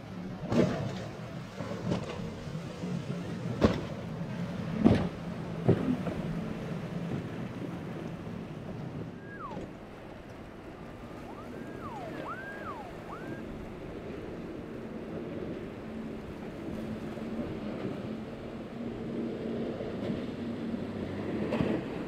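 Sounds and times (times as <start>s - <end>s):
hull slapping waves: 0.0s - 22.0s
wind and water: 0.0s - 22.0s
boat engine running: 1.2s - 19.7s
faint whistle-like calls: 9.1s - 13.6s.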